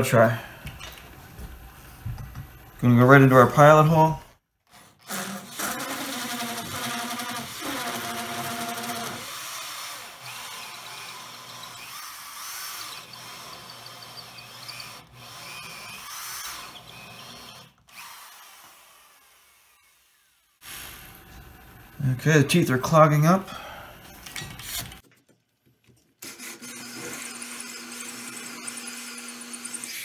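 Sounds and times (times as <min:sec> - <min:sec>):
electric drill motor whining: 0:04.7 - 0:20.6, 0:26.2 - 0:30.0
hole saw grinding into wood: 0:04.8 - 0:18.3.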